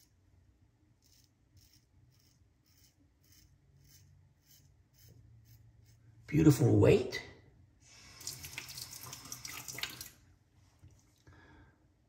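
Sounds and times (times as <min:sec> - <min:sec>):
razor scraping stubble: 0:01.0 - 0:06.1.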